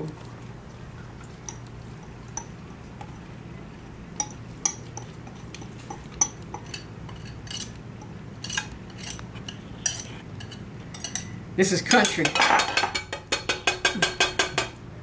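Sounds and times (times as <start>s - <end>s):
utensil scraping glass bowl: 5.0s - 7.8s, 8.4s - 11.3s.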